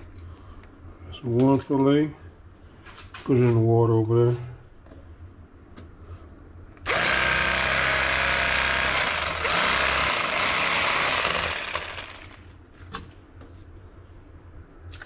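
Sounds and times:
electric fillet knife running: 6.9s - 12.4s.

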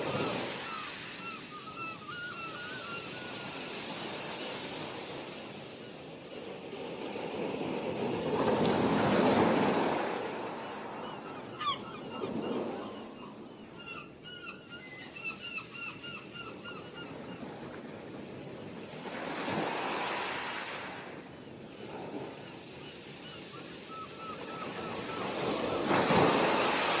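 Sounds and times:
ocean waves breaking: 0.0s - 5.8s, 6.4s - 13.4s, 17.4s - 27.0s
gulls calling: 10.7s - 17.2s.

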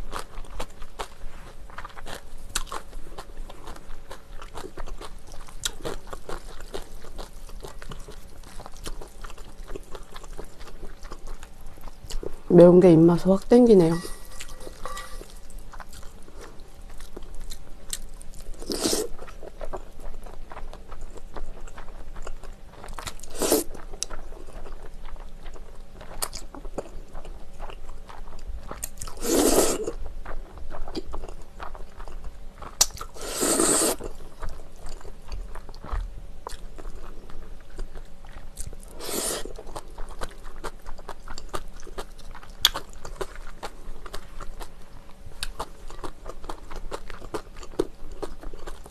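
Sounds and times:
wet chewing and crunching: 0.0s - 12.5s, 13.8s - 48.9s
slurping noodles: 23.3s - 23.7s, 29.2s - 29.9s, 33.2s - 34.1s, 38.9s - 39.6s.

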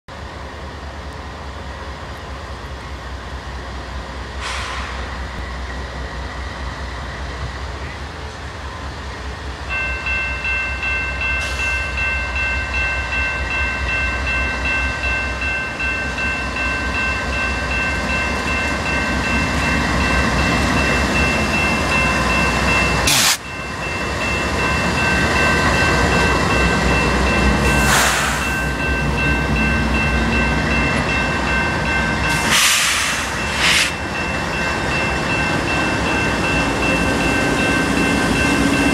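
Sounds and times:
diesel locomotives rumbling past: 0.1s - 38.9s
level crossing warning bell: 9.6s - 32.6s, 33.4s - 38.9s.

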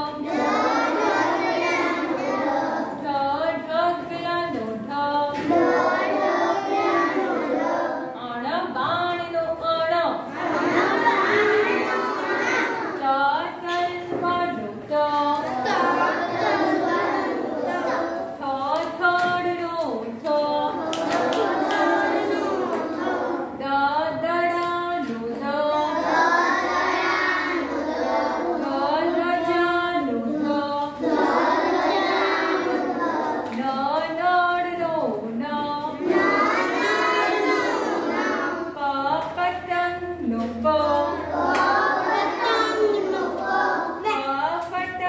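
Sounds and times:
woman chanting: 0.0s - 0.3s, 3.0s - 5.5s, 8.1s - 10.4s, 13.0s - 16.3s, 17.7s - 22.3s, 23.5s - 25.9s, 28.6s - 31.0s, 33.5s - 36.0s, 38.7s - 41.7s, 44.1s - 45.0s
children chanting: 0.0s - 3.1s, 5.3s - 8.2s, 10.2s - 13.2s, 15.2s - 18.9s, 20.5s - 24.2s, 24.8s - 34.0s, 35.8s - 38.9s, 40.0s - 44.4s.

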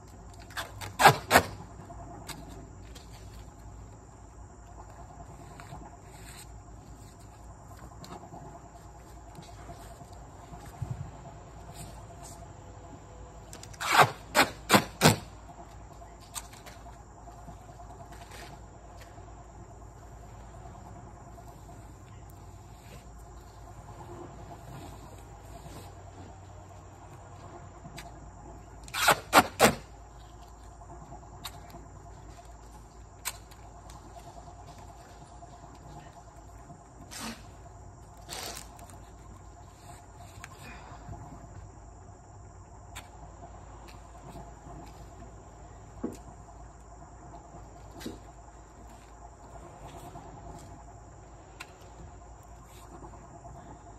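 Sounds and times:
insect chirring: 0.0s - 53.9s
tape ripping off a roll: 0.3s - 1.7s, 13.6s - 15.3s, 28.8s - 29.9s, 38.2s - 39.0s.

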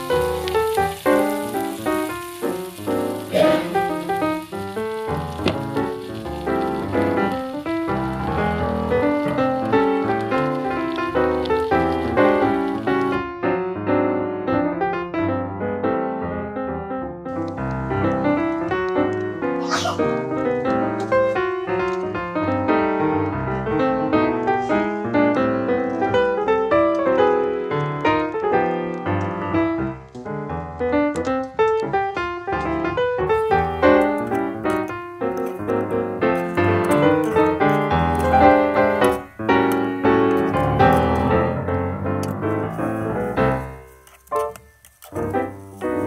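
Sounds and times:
piano playing quick notes: 0.0s - 13.2s, 17.3s - 22.5s.

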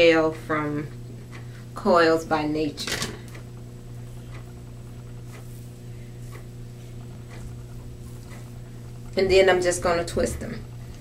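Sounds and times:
low electrical hum: 0.0s - 11.0s
fingers rustling through hair: 3.3s - 11.0s.

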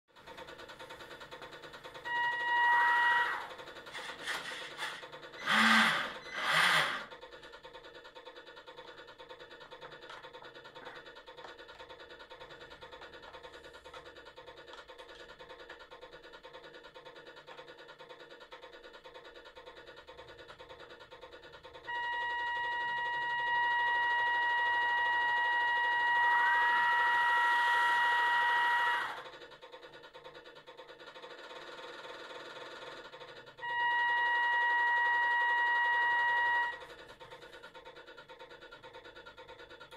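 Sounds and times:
diesel engine chugging: 0.1s - 39.9s
ship horn blasts: 2.1s - 3.6s, 21.9s - 29.2s, 33.6s - 36.8s.

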